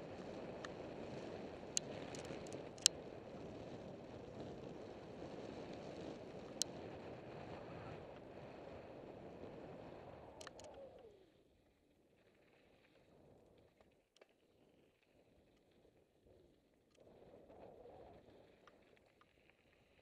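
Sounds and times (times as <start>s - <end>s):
bike tyres rolling over gravel: 0.0s - 10.1s
wind noise on camera: 0.0s - 11.2s.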